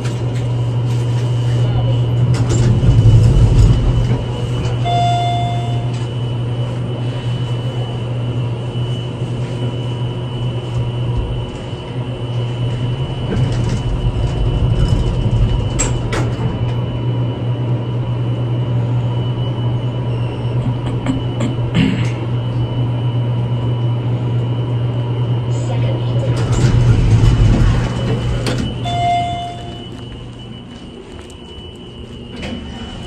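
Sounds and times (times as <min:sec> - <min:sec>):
elevator hum: 0:00.0 - 0:33.0
short electronic tone: 0:04.8 - 0:06.0, 0:28.7 - 0:30.6.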